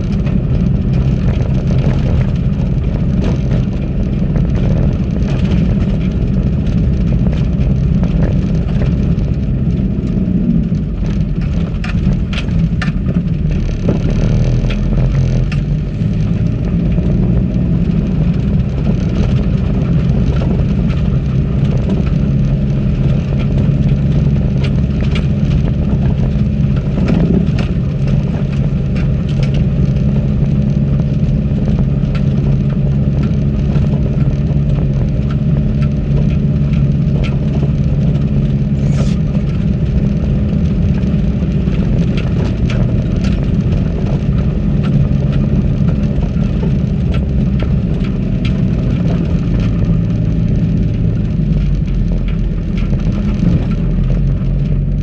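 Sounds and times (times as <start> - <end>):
vehicle engine under load: 0.0 - 55.0.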